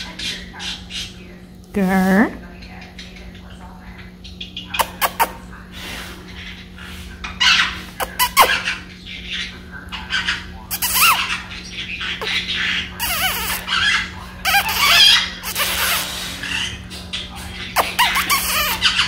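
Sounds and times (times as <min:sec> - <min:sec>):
parrot chattering and squawking: 0:04.0 - 0:05.5, 0:06.2 - 0:19.0.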